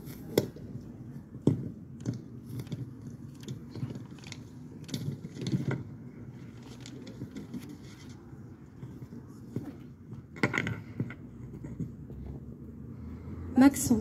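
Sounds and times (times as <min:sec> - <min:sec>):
paper rustling: 0:02.4 - 0:09.8.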